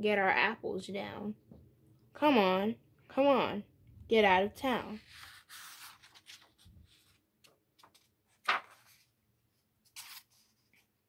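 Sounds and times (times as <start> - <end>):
paper page turning: 5.0 - 9.2, 9.8 - 10.9.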